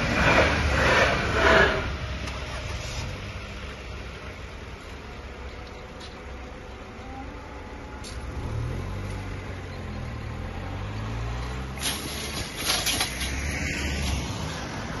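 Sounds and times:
low engine hum: 0.0 - 15.0
tyres bumping over rails: 11.8 - 14.4.

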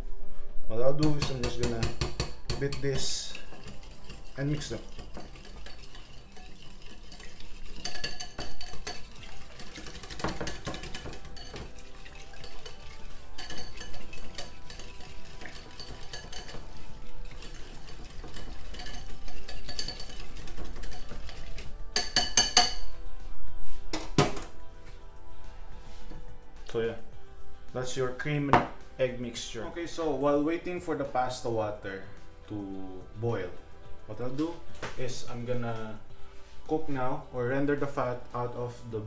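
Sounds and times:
fork clinking against ceramic bowl: 1.0 - 22.9.

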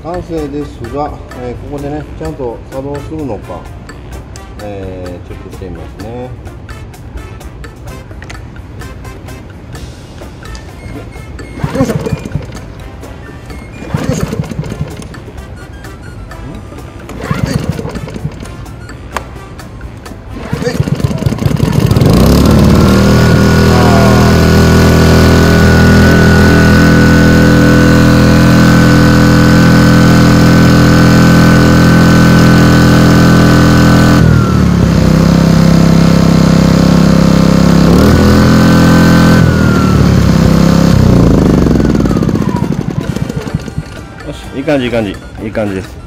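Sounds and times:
generator engine running: 10.5 - 16.0, 16.7 - 19.0, 20.1 - 45.8
recoil starter rope pull: 11.6 - 12.8, 13.7 - 15.4, 17.0 - 18.7, 20.3 - 44.1.

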